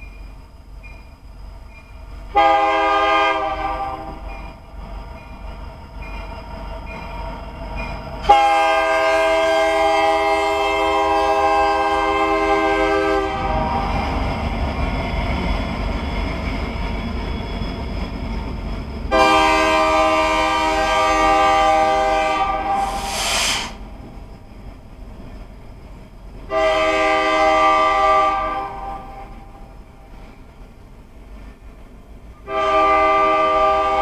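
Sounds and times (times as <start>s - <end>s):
freight train rumbling past: 0.0s - 34.0s
locomotive air horn blasts: 2.3s - 4.2s, 8.3s - 13.9s, 19.1s - 23.8s, 26.5s - 29.2s, 32.4s - 34.0s
short rushing hiss: 22.8s - 23.9s.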